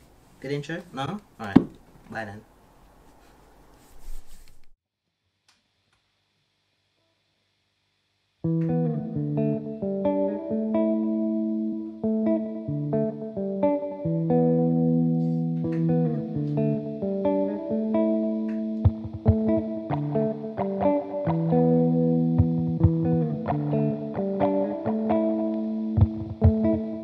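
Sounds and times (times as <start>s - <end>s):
electric guitar ringing chords: 8.4s - 27.0s.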